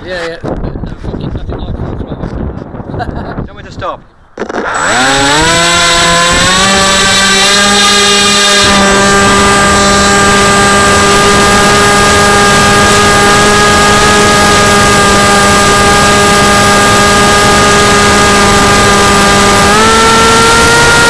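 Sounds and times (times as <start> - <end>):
electric motor and propeller whine: 4.4 - 21.0.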